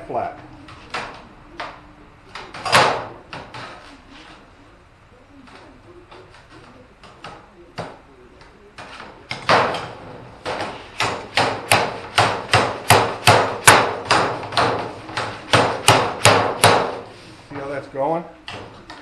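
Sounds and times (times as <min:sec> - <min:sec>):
hammer beating sheet metal: 0:02.4 - 0:03.8, 0:08.8 - 0:17.1.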